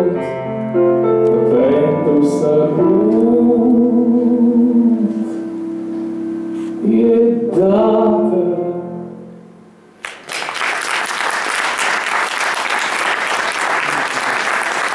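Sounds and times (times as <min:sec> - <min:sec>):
person singing with backing music: 0:01.3 - 0:05.6, 0:06.7 - 0:09.3
audience applause: 0:10.0 - 0:14.9.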